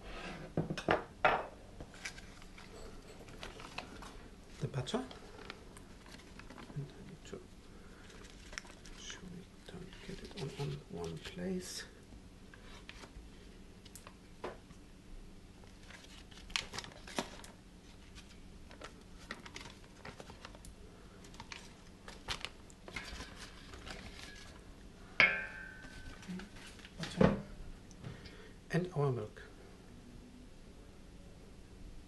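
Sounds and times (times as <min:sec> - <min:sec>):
foil wrappers crinkling: 0:01.9 - 0:06.8, 0:08.0 - 0:09.2, 0:15.7 - 0:24.7
sharp knock with ringing tone: 0:25.2 - 0:25.8.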